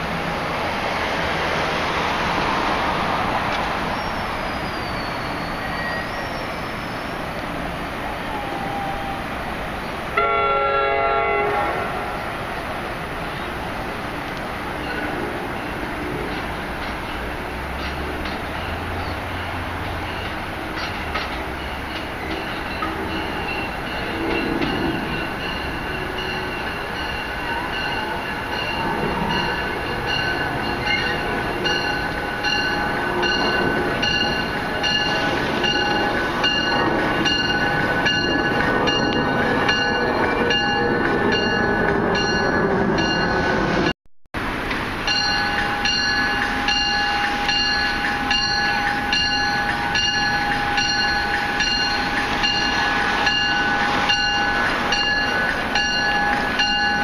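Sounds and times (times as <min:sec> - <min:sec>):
rumble of arriving train: 0:00.0 - 0:57.0
train bell ringing: 0:14.6 - 0:43.9, 0:45.0 - 0:57.0.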